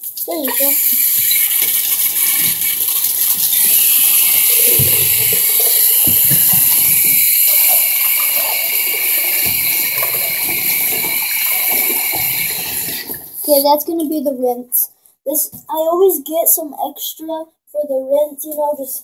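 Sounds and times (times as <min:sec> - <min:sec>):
water running from tap: 0:00.0 - 0:13.6
dull knocks: 0:04.6 - 0:07.3.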